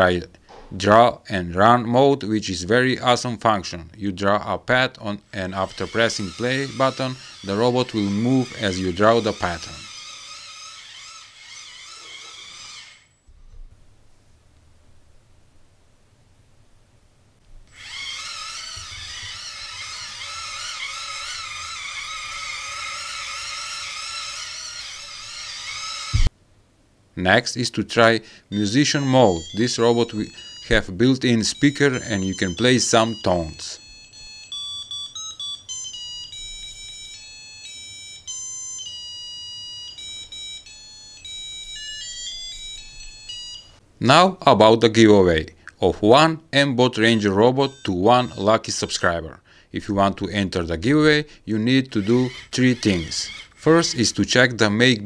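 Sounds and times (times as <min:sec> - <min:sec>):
electronic beep notes: 0:28.8 - 0:37.2.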